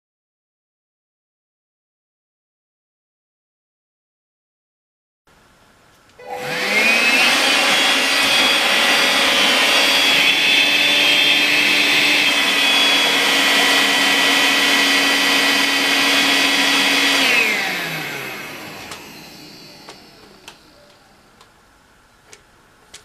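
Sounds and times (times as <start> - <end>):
stick vacuum whining: 6.2 - 21.5.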